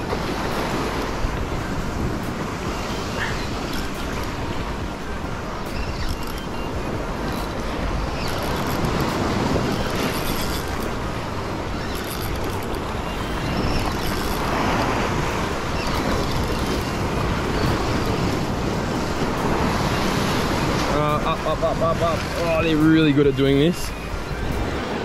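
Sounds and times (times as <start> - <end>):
wind buffeting microphone: 0.0 - 25.0
waves breaking against rocks: 6.6 - 25.0.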